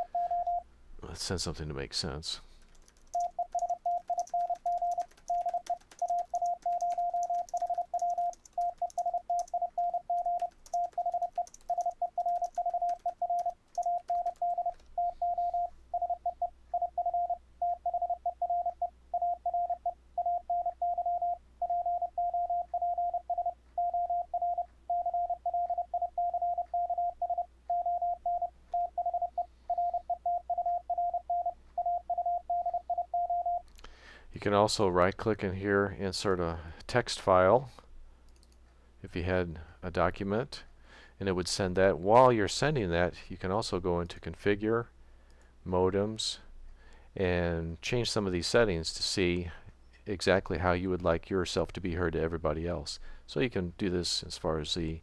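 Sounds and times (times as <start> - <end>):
morse code tone: 0.0 - 0.6, 3.2 - 33.6.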